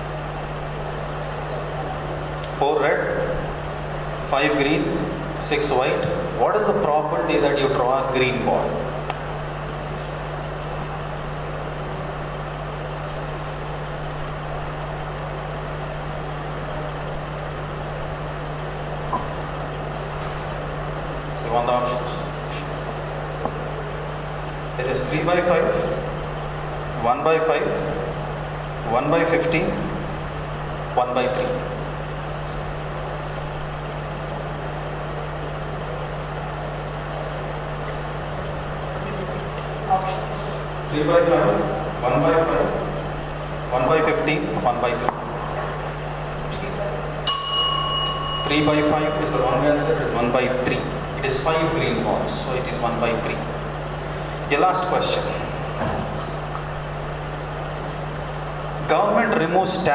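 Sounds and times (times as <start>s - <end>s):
low constant hum: 0.0s - 59.9s
low mains buzz: 0.0s - 59.9s.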